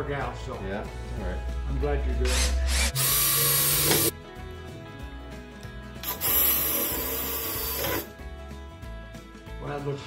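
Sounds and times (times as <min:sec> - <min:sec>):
background music: 0:00.0 - 0:10.0
cordless drill driving screw: 0:02.3 - 0:04.1, 0:06.0 - 0:08.1.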